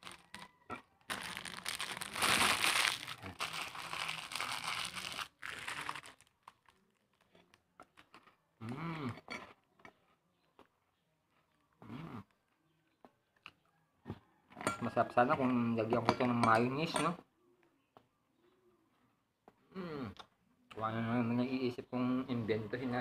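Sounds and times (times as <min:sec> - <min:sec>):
plastic wrapper crinkling: 0:00.0 - 0:08.2.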